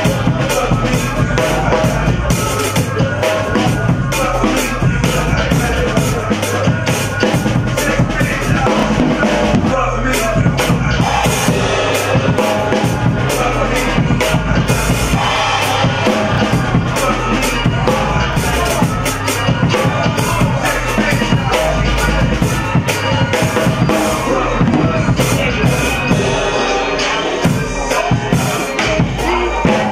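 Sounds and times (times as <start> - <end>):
drum kit beat: 0.0 - 29.9.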